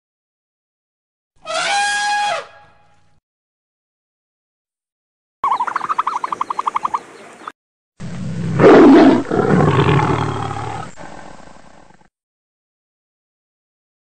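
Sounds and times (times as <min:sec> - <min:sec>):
lion roaring: 0:08.0 - 0:12.1.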